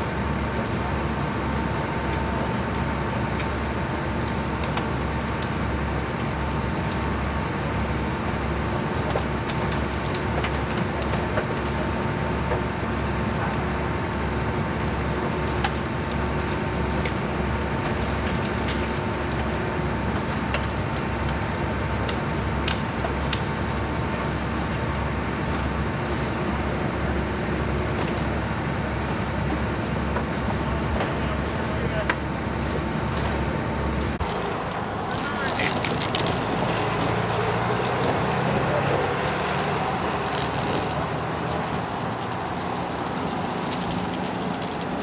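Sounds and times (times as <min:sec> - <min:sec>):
engine droning: 0:00.0 - 0:45.0.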